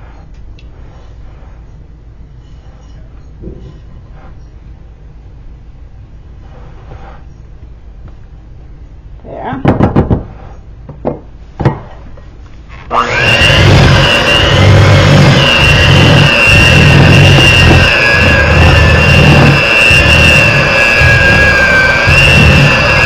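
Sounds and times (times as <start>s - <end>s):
electric mixer motor whining: 12.7s - 23.0s
beaters churning thick batter: 12.8s - 23.0s.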